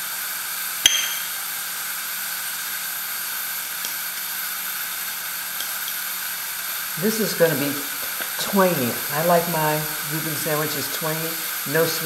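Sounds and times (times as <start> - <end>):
background hiss: 0.0 - 12.0
metal cup clinking: 0.8 - 1.4.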